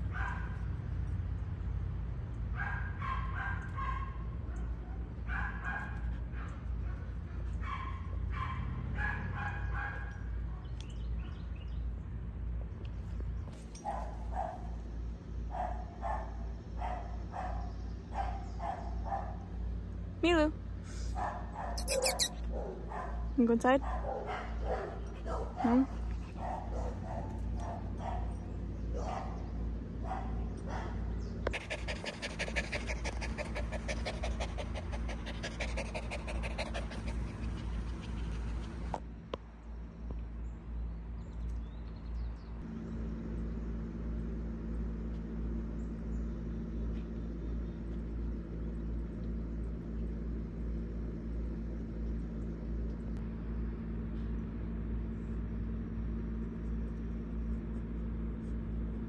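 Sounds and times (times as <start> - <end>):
low hum: 3.6 - 59.0
dog whining: 21.7 - 22.6
dog panting: 30.2 - 39.0.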